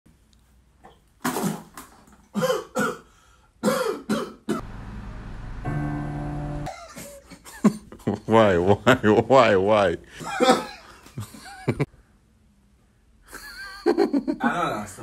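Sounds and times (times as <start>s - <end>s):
held chord: 4.6s - 6.7s.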